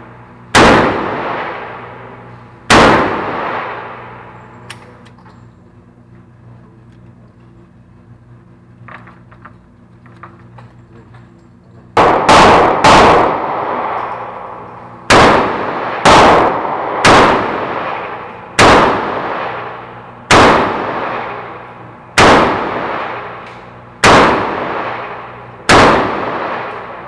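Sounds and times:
revolver shots echoing indoors: 0:00.0 - 0:05.3, 0:11.9 - 0:27.0.

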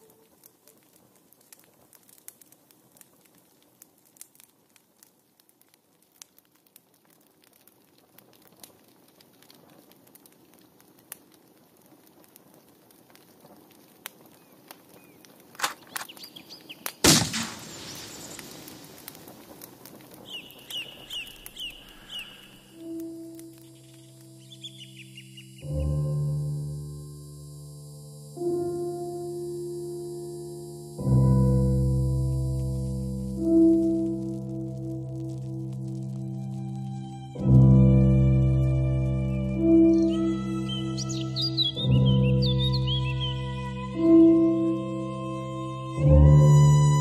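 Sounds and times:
sharp cracks: 0:00.0 - 0:26.0, 0:32.2 - 0:37.7
paint splat: 0:15.6 - 0:16.2, 0:17.0 - 0:19.3
rushing hiss: 0:17.0 - 0:25.7
high chirping: 0:20.2 - 0:22.8, 0:23.6 - 0:25.9, 0:39.9 - 0:43.6.

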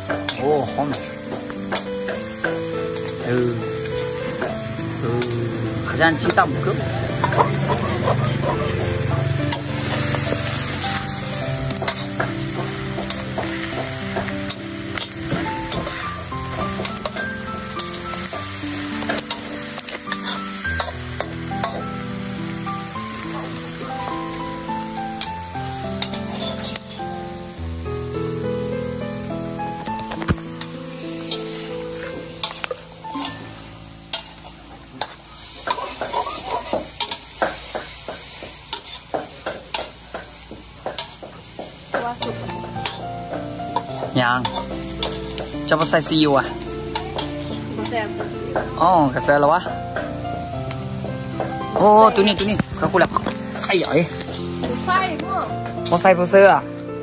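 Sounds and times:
egg sizzling: 0:00.0 - 0:57.0
soft background music: 0:00.0 - 0:57.0
metal spatula scraping a wok: 0:13.0 - 0:21.9, 0:26.0 - 0:27.1, 0:31.1 - 0:40.4, 0:43.8 - 0:45.5.

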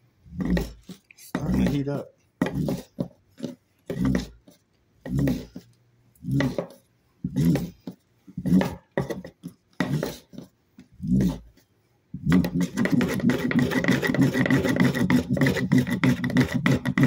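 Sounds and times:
wooden board rubbing on fire roll: 0:12.2 - 0:17.0.

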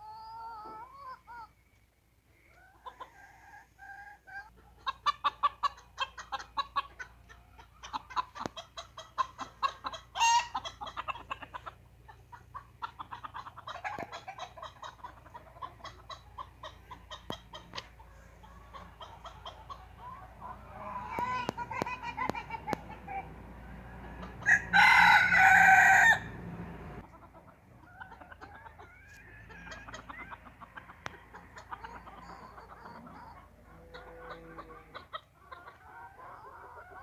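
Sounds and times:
chickens clucking: 0:00.0 - 0:37.0
rooster crowing: 0:23.7 - 0:26.5.

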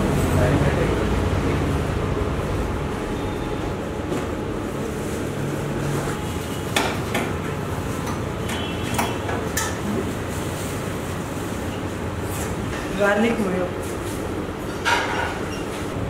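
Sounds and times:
kitchen background noise: 0:00.0 - 0:16.0
utensils and dishes clinking: 0:14.6 - 0:15.9.

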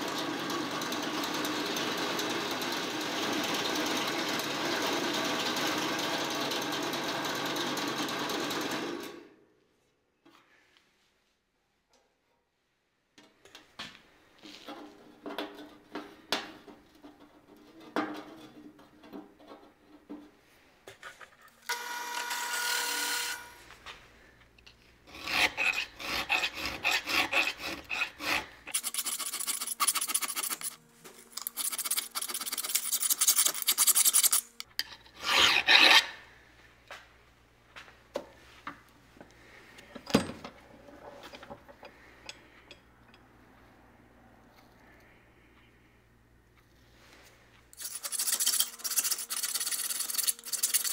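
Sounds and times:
file rasping on steel: 0:25.1 - 0:36.3, 0:47.8 - 0:50.9.

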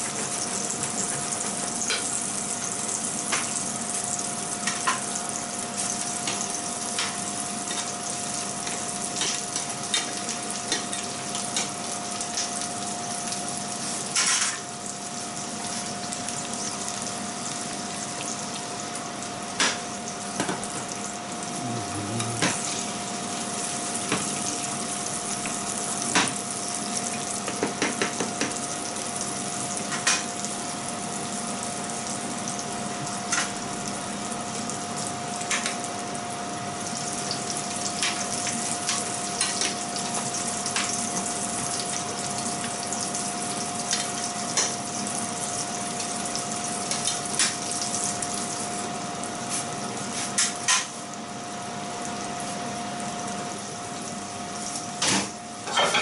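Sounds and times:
seafood sizzling in frying pans: 0:00.0 - 0:21.4, 0:22.3 - 0:56.0
utensils clattering against pans: 0:55.0 - 0:56.0.

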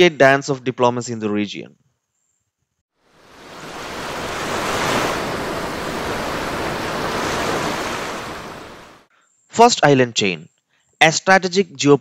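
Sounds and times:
ocean waves rushing: 0:03.1 - 0:09.1.

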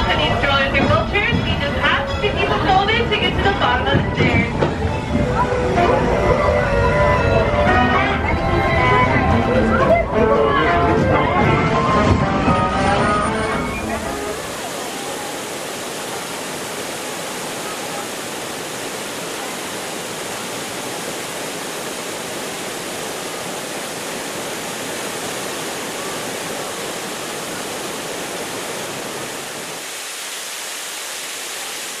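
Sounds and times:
waterfall pouring over rocks: 0:13.6 - 0:32.0.

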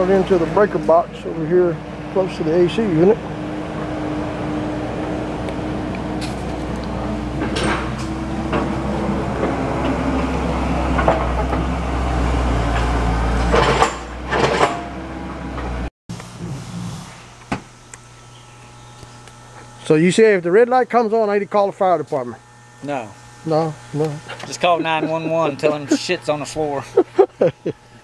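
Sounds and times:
low mechanical hum: 0:00.0 - 0:28.0
knocks and clatters: 0:13.5 - 0:14.9.

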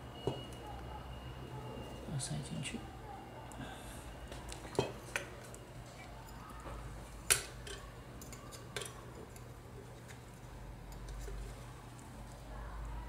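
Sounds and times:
pliers clicking on wire: 0:07.3 - 0:09.5.

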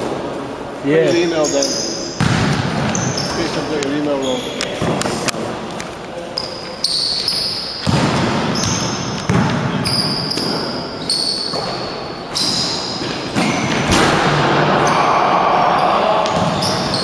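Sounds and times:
players' voices: 0:00.7 - 0:06.9, 0:13.8 - 0:17.0
sneaker squeaks: 0:01.1 - 0:05.2, 0:06.2 - 0:14.1, 0:14.8 - 0:17.0
basketball bouncing on wooden floor: 0:02.2 - 0:03.2, 0:07.8 - 0:10.6.

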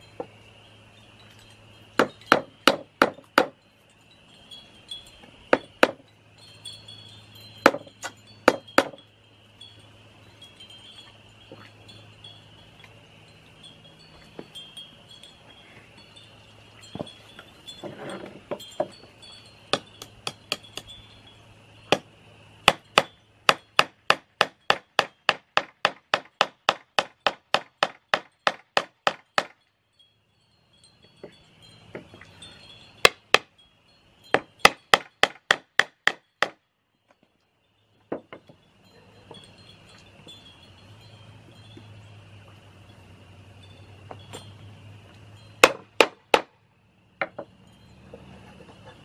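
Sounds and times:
faint wind chimes: 0:00.0 - 0:25.3, 0:28.0 - 0:35.3, 0:36.2 - 0:46.0, 0:46.6 - 0:49.0
hammer striking nails into wood: 0:02.0 - 0:03.5, 0:05.5 - 0:06.0, 0:07.6 - 0:09.0, 0:21.9 - 0:29.6, 0:34.3 - 0:36.6, 0:45.6 - 0:46.5.

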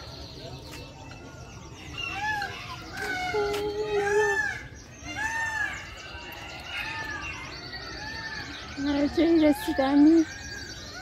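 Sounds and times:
peacocks wailing calls: 0:00.0 - 0:11.0
small birds chirping: 0:00.0 - 0:11.0.

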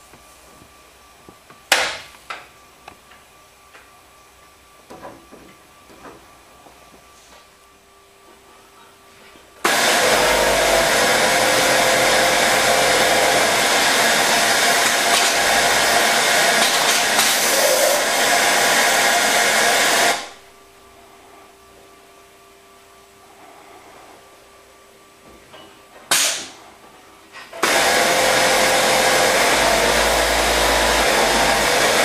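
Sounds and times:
sewing machine running: 0:09.7 - 0:20.3, 0:27.6 - 0:32.0.

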